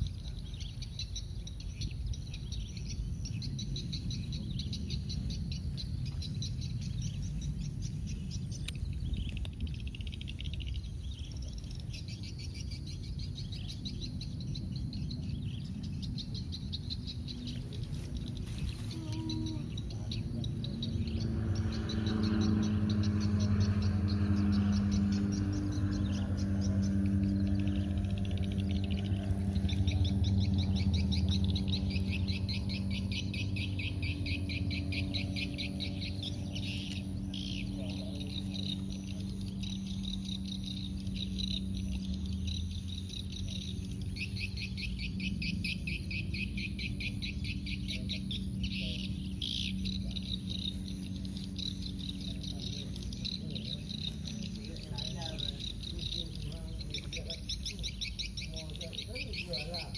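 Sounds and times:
insects chirping: 0.0 - 59.9
low motor hum: 0.0 - 59.9.

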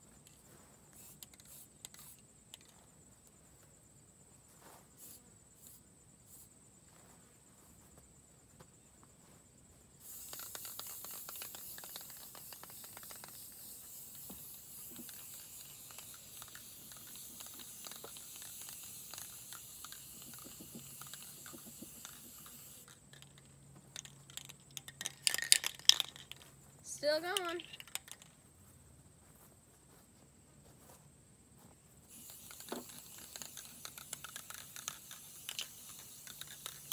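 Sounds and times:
aerosol spray can hissing: 0.9 - 2.7, 5.0 - 6.5, 10.0 - 22.9, 32.1 - 36.9.

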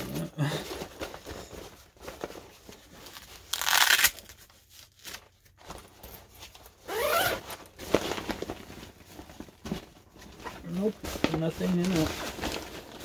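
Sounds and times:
fabric rustling: 0.0 - 13.0
zipper pulled open: 6.9 - 7.4.

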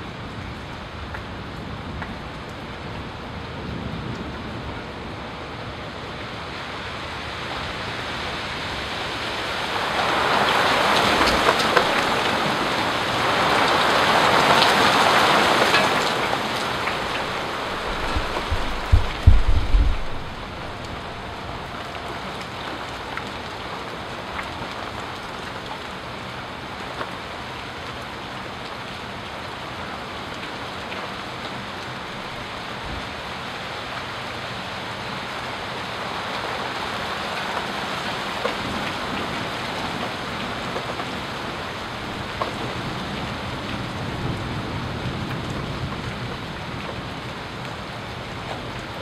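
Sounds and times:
steady rain falling: 0.0 - 49.0
water drips: 16.2 - 22.6
loud low rumble: 17.0 - 21.7.

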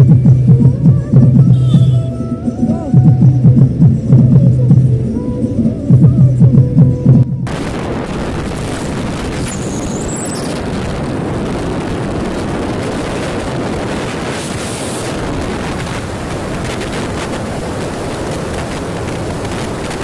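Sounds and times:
car road noise: 6.6 - 20.0
wind rushing over microphone: 6.6 - 20.0.

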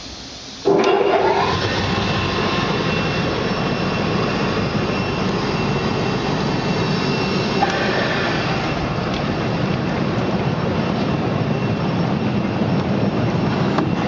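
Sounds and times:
air churning water: 0.0 - 4.1
air blower motor whine: 0.0 - 14.0.

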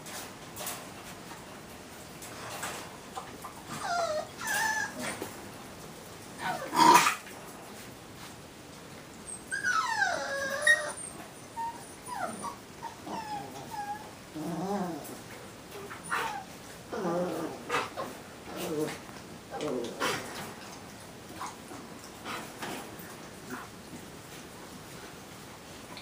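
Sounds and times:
puppy rattling growl: 3.6 - 5.4, 6.4 - 7.5, 13.0 - 23.7
puppies yipping and whining: 3.7 - 5.3, 9.2 - 18.0.

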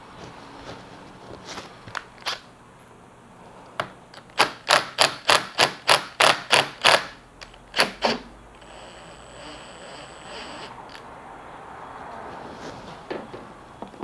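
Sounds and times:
impact driver rattling bursts: 4.3 - 10.7.

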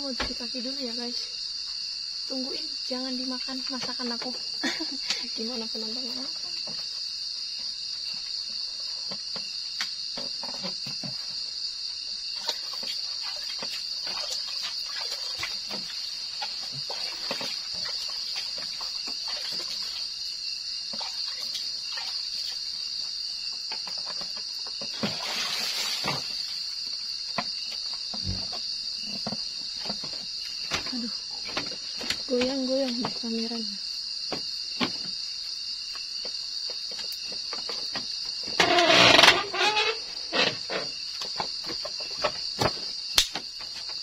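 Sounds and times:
crickets chirping: 0.0 - 44.0
water splashing and pouring: 12.4 - 20.2, 24.9 - 26.7.

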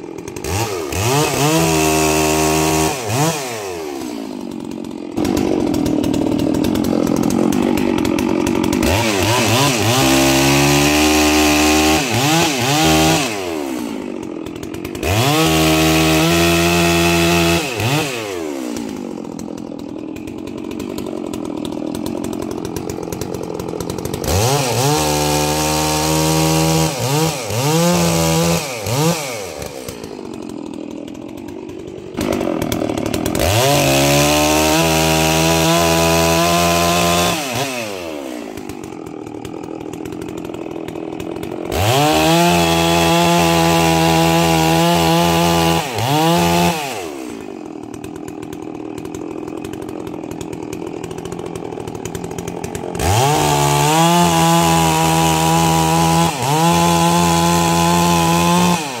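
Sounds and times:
chainsaw cutting logs: 0.0 - 59.0
chainsaw idling: 0.0 - 59.0.

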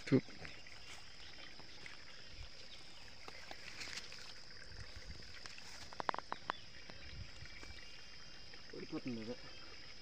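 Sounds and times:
bamboo clicks and knocks: 5.4 - 7.0.

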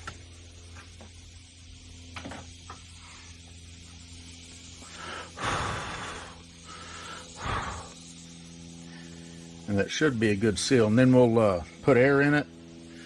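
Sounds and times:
low electrical hum: 0.0 - 13.0
person exhaling breathily: 4.8 - 8.0.

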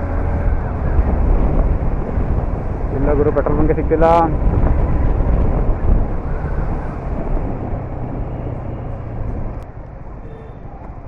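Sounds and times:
wind rumble on microphone: 0.0 - 11.0.

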